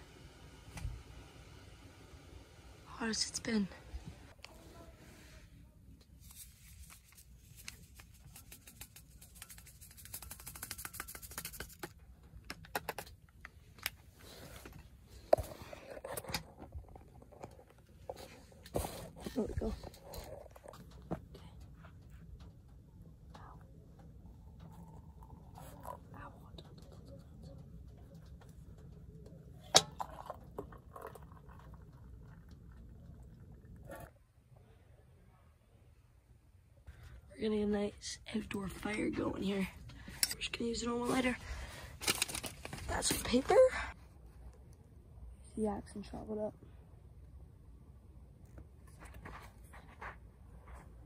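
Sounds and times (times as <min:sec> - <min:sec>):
liquid pouring into a mug: 0:24.3 - 0:26.1, 0:29.8 - 0:34.0.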